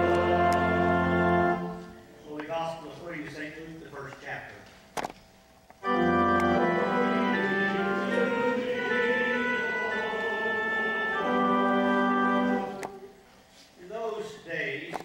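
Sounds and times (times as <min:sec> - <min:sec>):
church organ chords: 0:00.0 - 0:04.2, 0:05.7 - 0:13.3.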